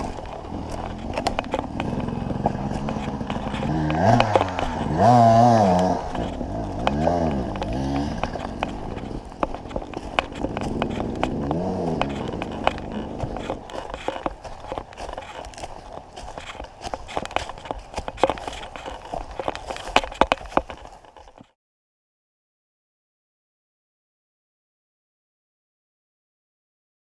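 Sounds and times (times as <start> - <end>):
two-stroke engine revving: 0.0 - 20.8
sharp clicks and knocks: 0.0 - 21.6.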